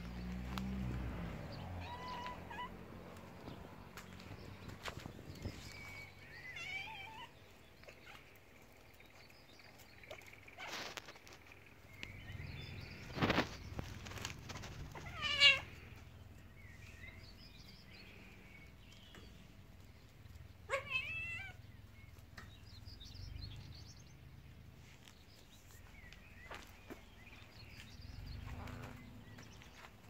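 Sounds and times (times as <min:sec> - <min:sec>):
rustling noises: 0:00.0 - 0:06.3, 0:07.4 - 0:16.0
cat meowing: 0:01.8 - 0:02.7, 0:20.7 - 0:21.6.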